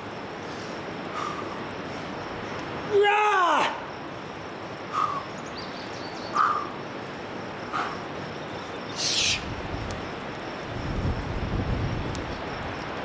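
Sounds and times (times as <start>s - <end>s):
sharp hissing exhale: 0.4s - 1.6s, 4.9s - 5.3s, 6.3s - 6.7s, 7.7s - 8.0s, 9.0s - 9.5s.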